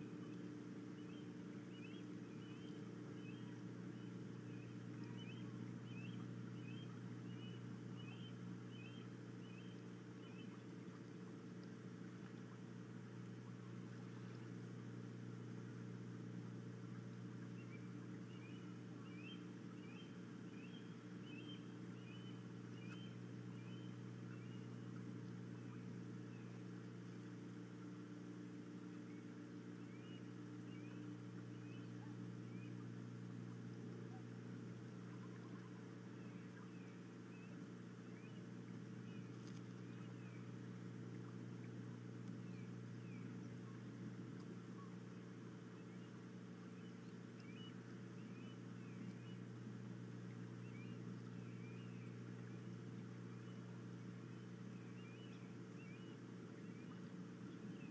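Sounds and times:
low mechanical hum: 0.0s - 57.9s
bird chirps: 1.0s - 10.6s, 17.5s - 24.9s, 28.9s - 32.8s, 35.1s - 40.6s, 42.4s - 43.9s, 45.7s - 49.4s, 50.6s - 57.9s.

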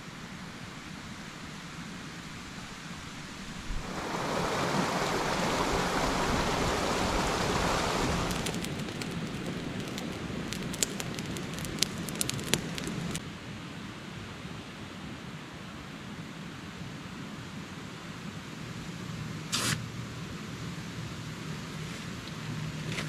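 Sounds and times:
steady rain in forest: 0.0s - 13.2s
close drops ticking: 8.3s - 13.2s.

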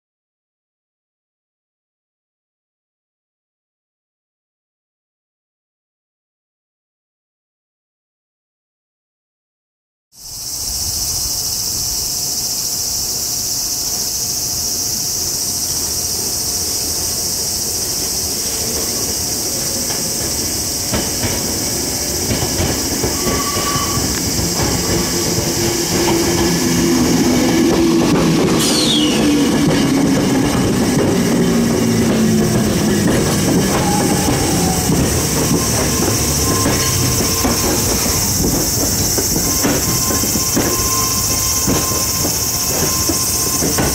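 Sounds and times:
train running and motor noise: 10.2s - 43.9s
wheels squealing: 13.7s - 43.9s.

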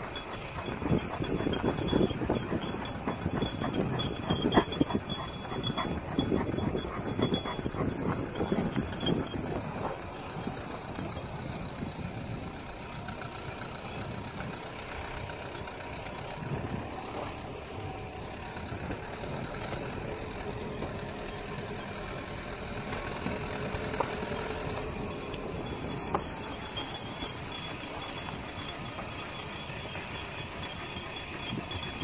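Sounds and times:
car engine running at low speed: 0.0s - 32.0s.

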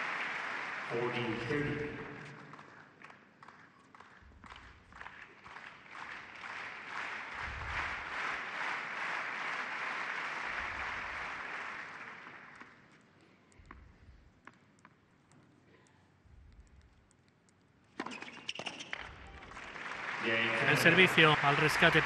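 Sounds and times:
crowd applauding: 0.0s - 12.8s, 19.0s - 22.0s
tennis ball bouncing on court: 18.0s - 19.2s.

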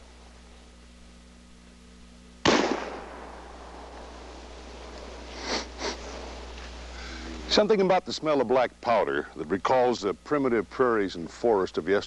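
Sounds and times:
rifle shot: 2.4s - 5.2s.

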